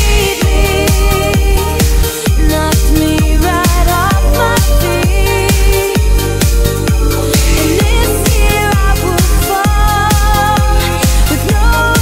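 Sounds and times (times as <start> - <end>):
deep kick drum: 0.0 - 12.0
electronic dance music: 0.0 - 12.0
sustained synth tones: 3.2 - 9.8.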